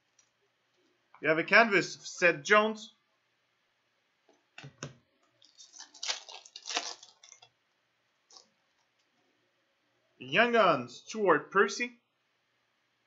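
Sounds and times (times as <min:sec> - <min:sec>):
wrapper and cards crinkling: 0:05.4 - 0:07.5.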